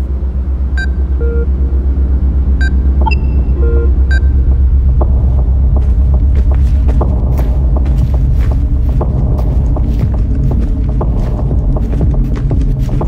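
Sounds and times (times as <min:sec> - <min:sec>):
soft tones: 0:00.0 - 0:05.8
pulsing bass rumble: 0:00.0 - 0:13.0
short electronic beeps: 0:00.8 - 0:01.5, 0:02.6 - 0:04.4.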